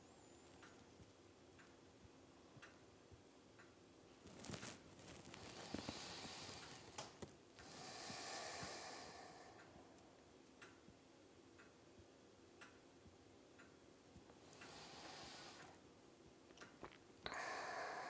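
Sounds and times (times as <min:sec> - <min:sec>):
faint small ticks: 0:00.4 - 0:02.8
person breathing softly: 0:05.3 - 0:07.0, 0:07.6 - 0:10.1, 0:14.4 - 0:15.8, 0:17.2 - 0:18.0.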